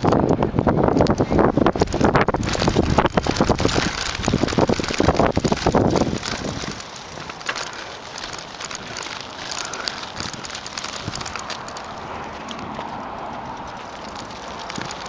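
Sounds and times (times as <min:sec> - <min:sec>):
wind on the microphone: 0:00.0 - 0:07.4, 0:09.8 - 0:11.6
bike rattles and knocks: 0:00.0 - 0:15.0
knobby tyres crunching on dirt: 0:00.0 - 0:15.0.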